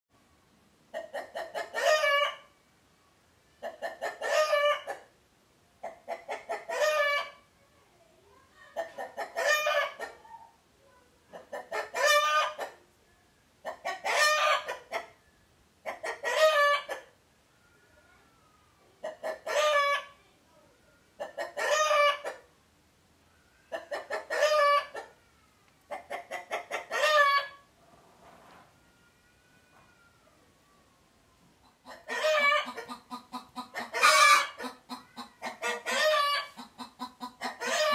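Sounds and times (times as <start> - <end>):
rooster crowing: 32.1 - 32.8, 33.9 - 34.6, 37.5 - 37.9.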